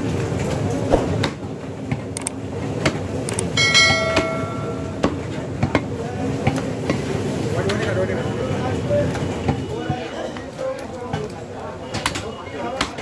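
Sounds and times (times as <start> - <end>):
metallic ring: 3.6 - 5.2.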